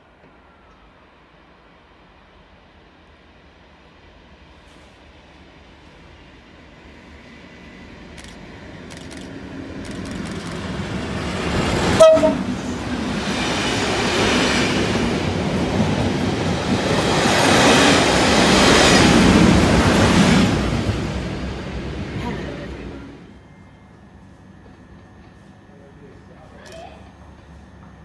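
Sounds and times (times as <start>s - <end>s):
diesel locomotive passing: 0.0s - 26.3s
train wheel noise: 5.8s - 28.0s
train horn blast: 11.9s - 12.7s.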